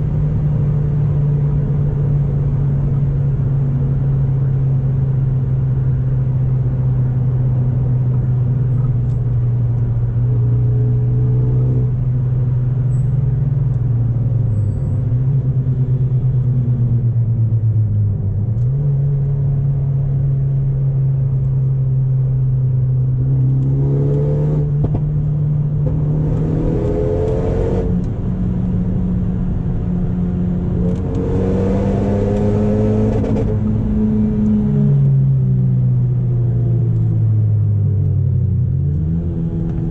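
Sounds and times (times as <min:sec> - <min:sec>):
turbocharged car engine under load: 0:00.0 - 0:39.9.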